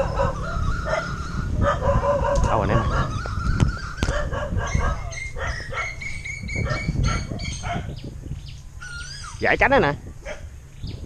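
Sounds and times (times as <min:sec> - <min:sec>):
dogs barking: 0:00.0 - 0:08.0, 0:10.2 - 0:10.5.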